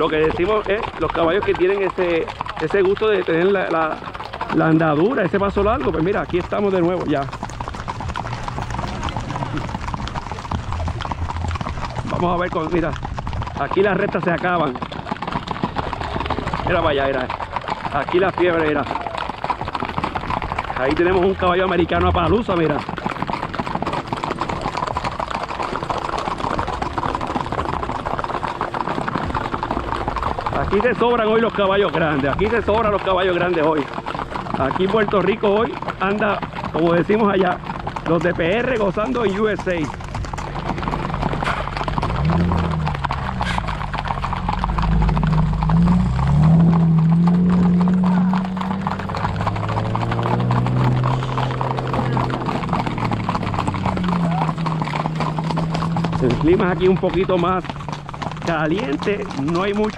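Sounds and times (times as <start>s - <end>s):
horse hooves clip-clopping: 0.0s - 59.9s.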